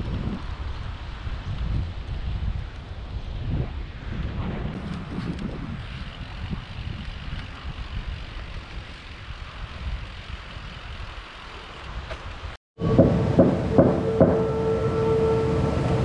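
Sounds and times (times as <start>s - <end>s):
bicycle tyres rolling on asphalt: 0.0s - 12.6s
wind rumble on microphone: 0.0s - 16.0s.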